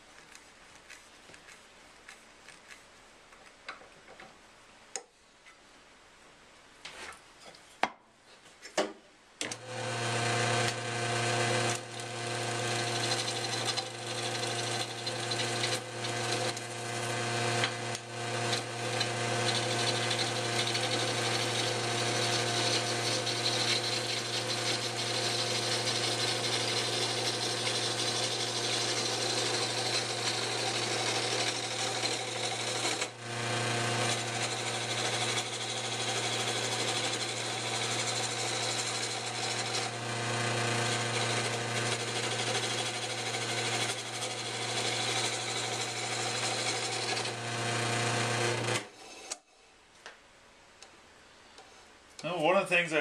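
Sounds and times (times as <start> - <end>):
gouge scraping spinning wood: 0.2 - 3.6, 9.7 - 49.4
lathe motor humming: 9.5 - 48.9.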